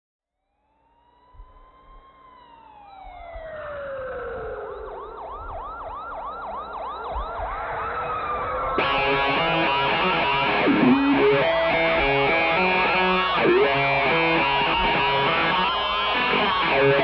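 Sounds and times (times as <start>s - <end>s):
muffled siren-like sound effect: 0.3s - 17.0s
rock music with distorted guitar: 8.8s - 17.0s.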